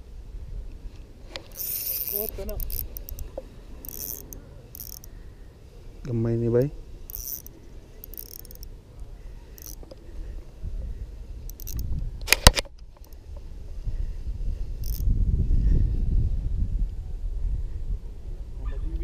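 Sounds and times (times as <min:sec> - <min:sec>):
fishing reel being cranked: 0:01.4 - 0:05.2, 0:07.1 - 0:08.7, 0:09.5 - 0:10.0, 0:11.4 - 0:11.9, 0:14.8 - 0:15.1
mechanical ticks: 0:01.6 - 0:03.2, 0:03.8 - 0:05.1, 0:07.1 - 0:08.7, 0:09.6 - 0:10.0, 0:11.5 - 0:12.4, 0:14.8 - 0:15.0.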